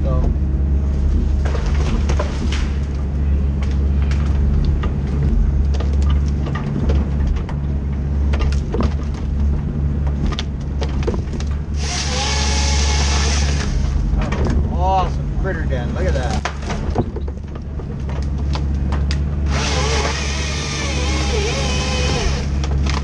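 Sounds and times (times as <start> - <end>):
diesel engine running: 0.0 - 23.0
chainsaw cutting through wood: 11.8 - 14.0, 19.4 - 22.8
branches snapping with sharp cracks: 22.3 - 23.0.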